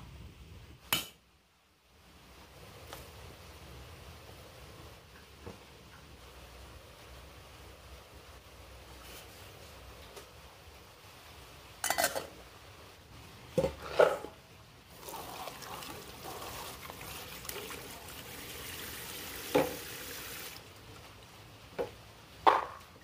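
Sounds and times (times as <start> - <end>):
metal pots clanking: 11.8 - 12.3
faucet spraying into metal bowl: 15.0 - 20.6.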